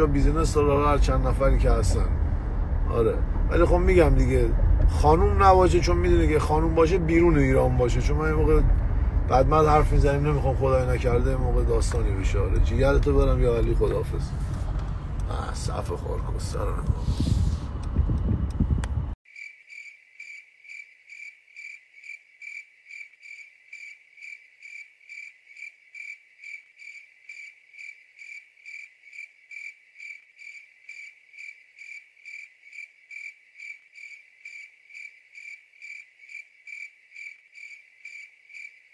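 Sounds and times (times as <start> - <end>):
voice: 0.0 - 2.2, 2.9 - 8.7, 9.3 - 14.4, 15.2 - 17.6
cricket chirping: 19.3 - 38.9.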